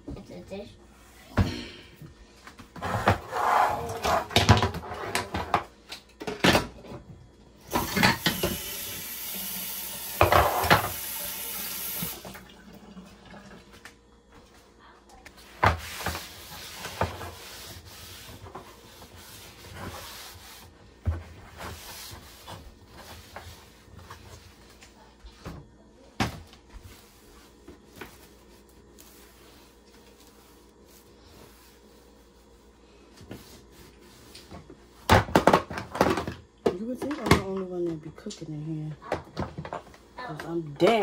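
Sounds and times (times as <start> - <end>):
paper towel rubbing on griddle: 15.8 - 24.2
faint handling sounds: 26.4 - 35.0.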